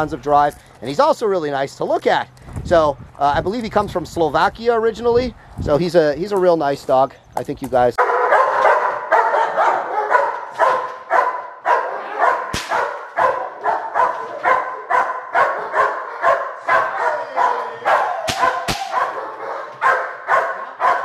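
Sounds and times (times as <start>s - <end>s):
dog barking: 8.0s - 21.0s
sharp crack: 12.5s - 13.2s, 18.2s - 19.1s.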